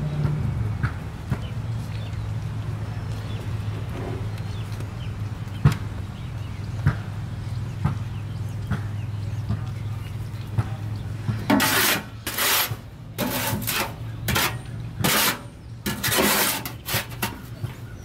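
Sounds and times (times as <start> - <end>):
tool scraping in wheelbarrow: 11.3 - 17.8.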